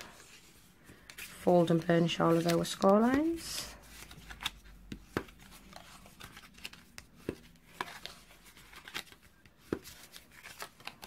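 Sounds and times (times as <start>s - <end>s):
paper crackling and rubbing: 1.2s - 11.0s.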